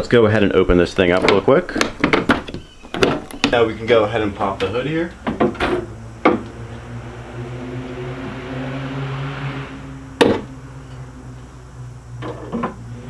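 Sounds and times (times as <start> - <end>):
low hum: 3.7 - 13.0.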